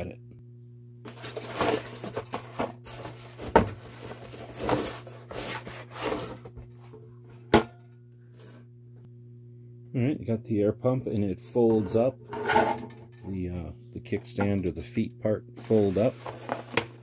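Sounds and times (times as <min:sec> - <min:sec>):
cardboard rustling and scraping: 0:01.1 - 0:07.4, 0:15.6 - 0:17.0.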